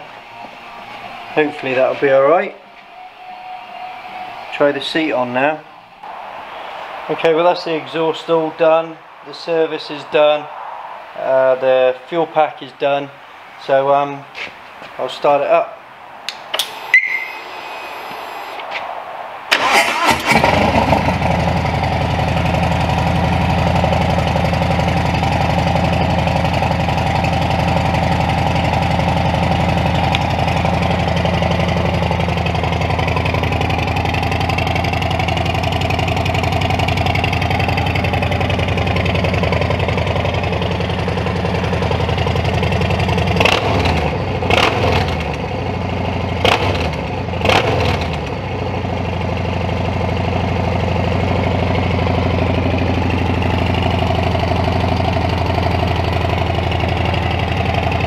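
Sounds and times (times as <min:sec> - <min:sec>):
engine revving bursts: 0:19.5 - 0:22.9, 0:43.3 - 0:45.4, 0:46.4 - 0:48.3
motorcycle engine idling: 0:20.4 - 0:47.4, 0:48.1 - 0:58.0.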